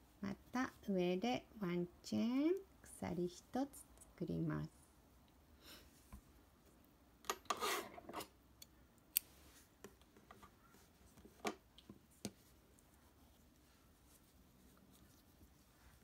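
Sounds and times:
yarn rustling: 12.4 - 16.0.

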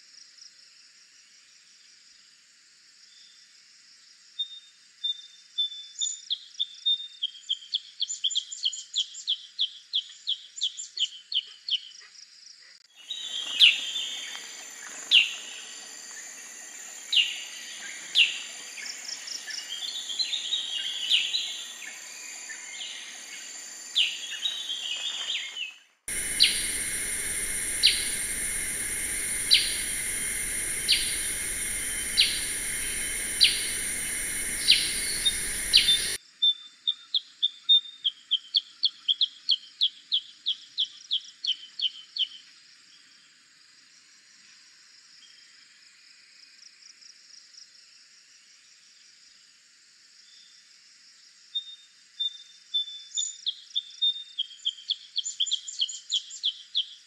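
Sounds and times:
recording hiss: 13.0 - 25.4, 26.1 - 36.2
bulbul calls: 26.1 - 36.2.

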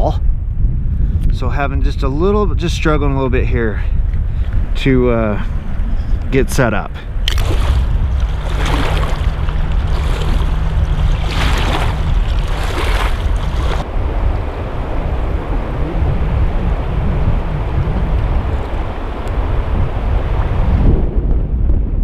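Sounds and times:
wind buffeting microphone: 0.0 - 22.0
shallow river rushing: 7.2 - 20.6.

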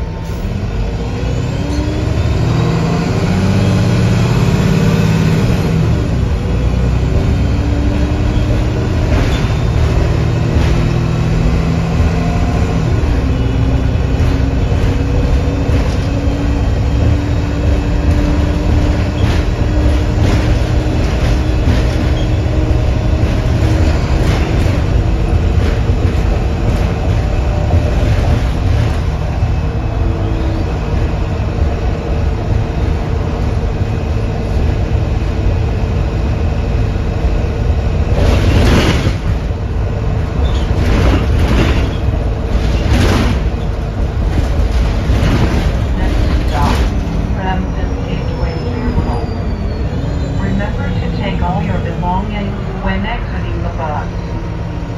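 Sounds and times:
bus engine drone: 0.0 - 54.9
road noise: 0.0 - 54.9
body knocks and rattles: 40.4 - 47.1.

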